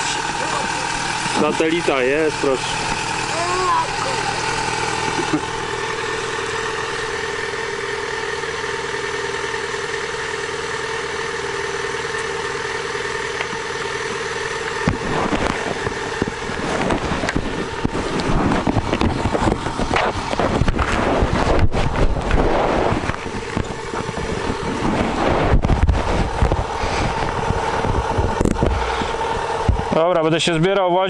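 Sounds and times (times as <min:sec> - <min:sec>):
motorcycle engine idling: 0:00.0 - 0:31.0
rumbling gusty noise: 0:14.9 - 0:30.7.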